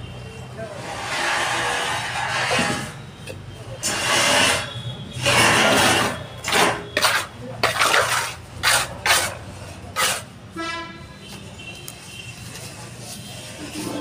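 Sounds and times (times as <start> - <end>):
trowel scraping mortar: 3.8 - 10.4.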